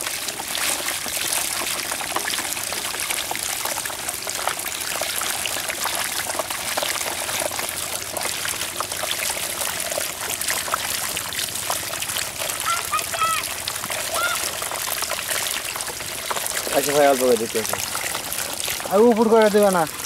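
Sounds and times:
fish flapping and splashing: 0.0s - 20.0s
water pouring through a chute: 0.0s - 20.0s.

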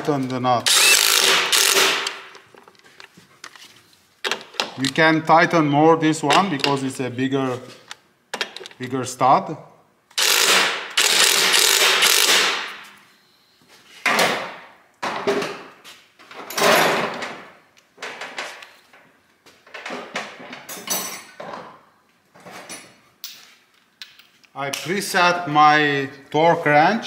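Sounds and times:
impact wrench bursts: 0.6s - 2.3s, 10.1s - 12.8s.

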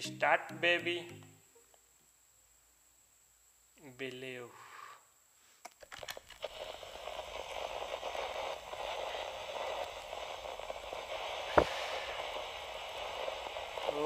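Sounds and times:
vinyl record hiss and crackle: 0.0s - 14.0s
sharp vinyl pop: 6.0s - 14.0s.

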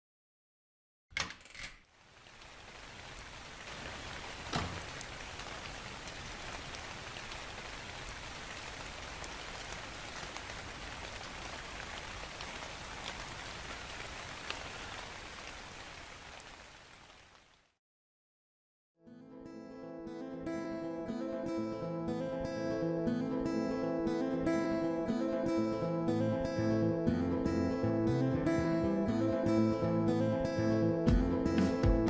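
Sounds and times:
steady rain hiss: 1.8s - 17.8s.

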